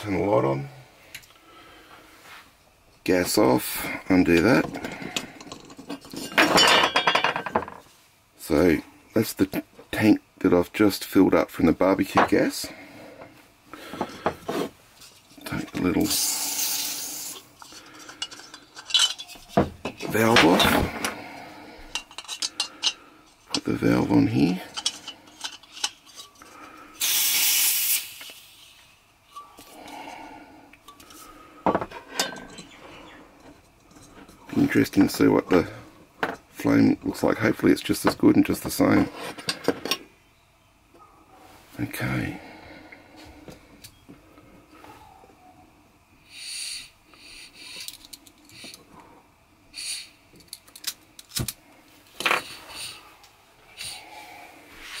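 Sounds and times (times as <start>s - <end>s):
gas hissing: 15.6s - 19.2s, 26.6s - 32.9s, 49.7s - 50.4s
gas hissing out: 16.0s - 17.6s, 26.8s - 29.0s, 46.2s - 47.9s, 49.7s - 50.2s.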